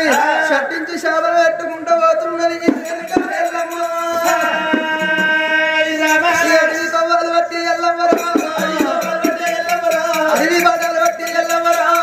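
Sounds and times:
sharp percussive strikes: 2.6 - 7.0, 8.0 - 12.0.

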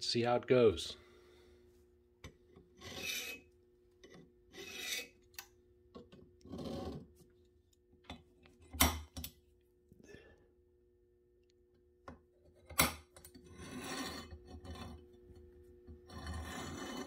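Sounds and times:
metal point scratching steel: 2.8 - 3.5, 4.5 - 5.2, 16.1 - 17.0.

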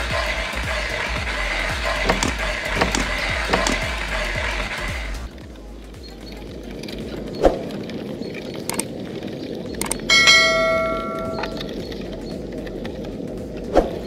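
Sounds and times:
sharp knock: 2.0 - 3.9
bell-like metallic ring: 10.1 - 11.7.

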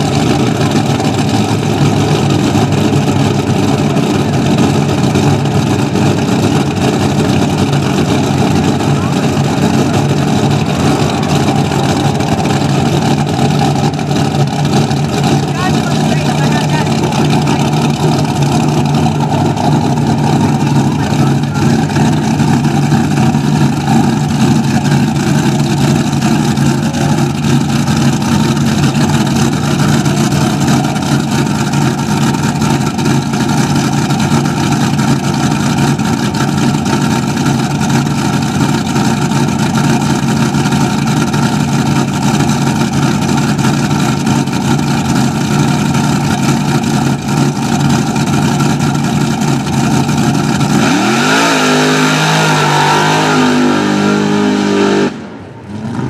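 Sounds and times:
truck engine idling loudly: 0.0 - 56.0.

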